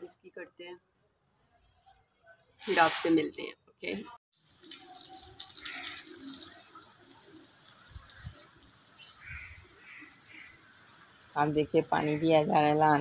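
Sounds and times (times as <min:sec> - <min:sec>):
water running from a hose: 0:04.3 - 0:13.0.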